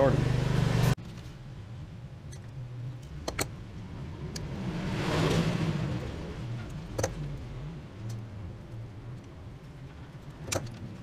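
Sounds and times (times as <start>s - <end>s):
pliers clicking and snipping wire: 6.7s - 7.2s, 10.2s - 10.8s.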